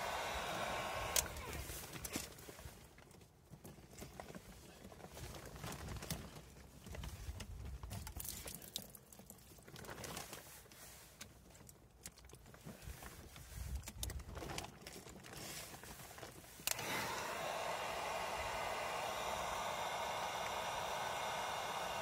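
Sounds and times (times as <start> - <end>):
heat gun blowing hiss: 0.0 - 1.9, 16.7 - 22.0
light plastic rustling: 1.6 - 16.7.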